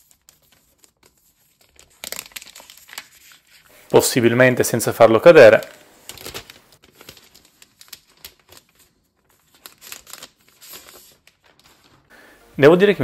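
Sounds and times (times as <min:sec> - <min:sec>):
plastic wrap crinkling and tearing: 0:00.0 - 0:03.8, 0:05.2 - 0:12.1.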